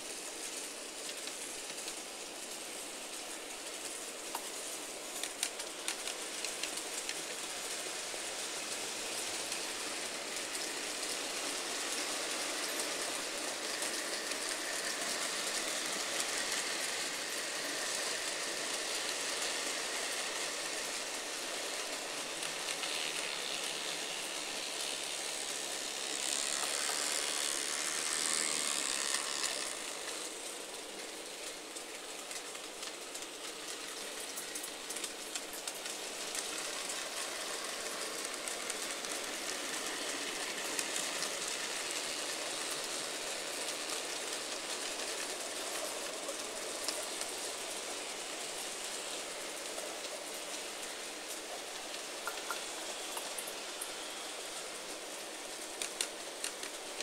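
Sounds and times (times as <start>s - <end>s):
model trains rattling on track: 0.0s - 57.0s.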